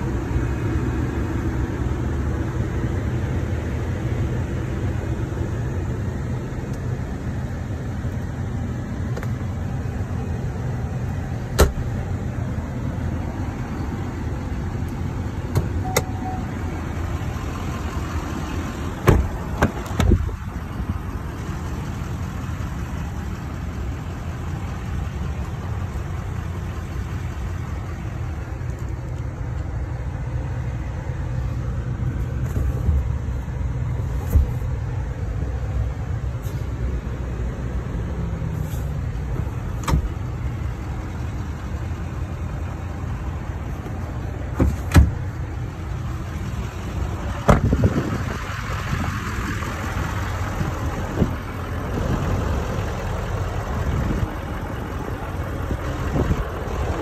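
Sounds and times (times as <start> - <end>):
pickup engine idling: 0.0 - 57.0.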